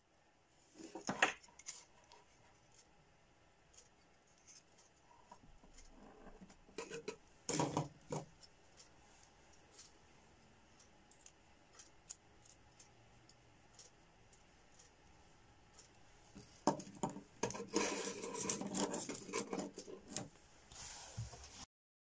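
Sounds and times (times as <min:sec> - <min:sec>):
knocks and clicks of handled parts: 0:05.3 - 0:08.9, 0:15.8 - 0:20.4.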